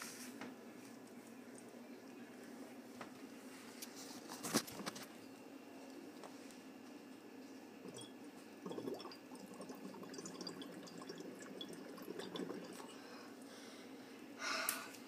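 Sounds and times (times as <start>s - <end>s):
bubbling through a straw: 7.9s - 12.9s.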